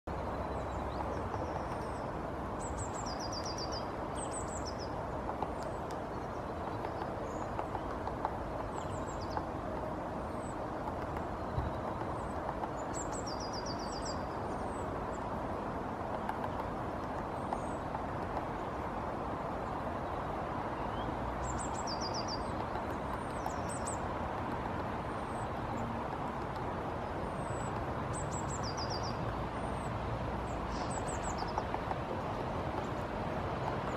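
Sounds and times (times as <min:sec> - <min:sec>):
small birds chirping: 0:00.1 - 0:15.3, 0:16.0 - 0:18.7, 0:19.6 - 0:31.9
woodpecker tapping on wood: 0:00.8 - 0:02.0, 0:05.2 - 0:09.9, 0:10.5 - 0:13.8, 0:15.9 - 0:18.7, 0:21.9 - 0:25.0, 0:25.8 - 0:26.8, 0:31.0 - 0:33.0.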